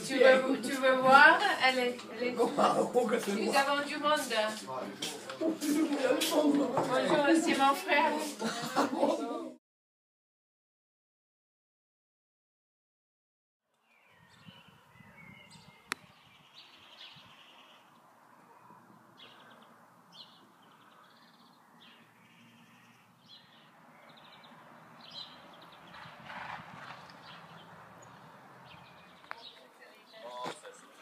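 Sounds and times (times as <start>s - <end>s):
outdoor background noise: 0.0s - 9.6s, 13.6s - 31.0s
small birds chirping: 13.7s - 31.0s.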